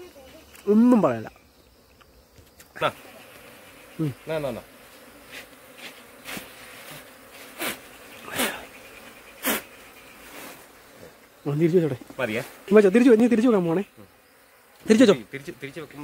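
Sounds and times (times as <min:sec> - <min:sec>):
bees buzzing: 0:00.0 - 0:16.0.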